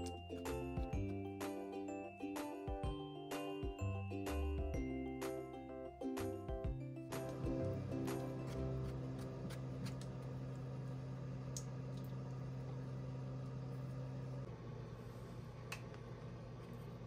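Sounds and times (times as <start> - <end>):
quiet background music: 0.0 - 10.2.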